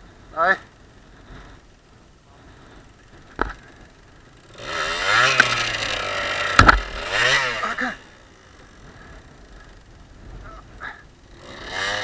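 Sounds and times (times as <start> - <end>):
dirt bike engine revving: 3.4 - 9.8, 11.2 - 12.0
sharp knocks: 6.4 - 7.0.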